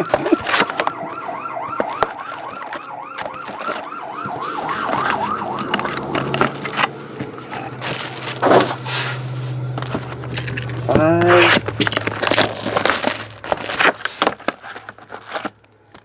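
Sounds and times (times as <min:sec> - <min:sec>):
emergency vehicle siren: 0:00.0 - 0:09.8.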